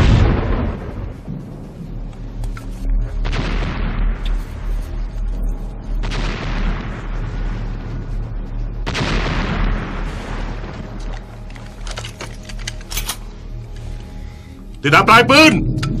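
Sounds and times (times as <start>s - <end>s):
artillery shells exploding: 0.0s - 1.4s, 8.8s - 11.2s
continuous low rumble: 0.0s - 16.0s.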